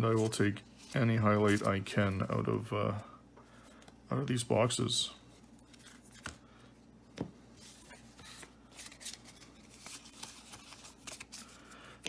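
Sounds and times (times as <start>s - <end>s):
cards sliding and rustling: 5.3s - 6.4s, 7.1s - 11.7s.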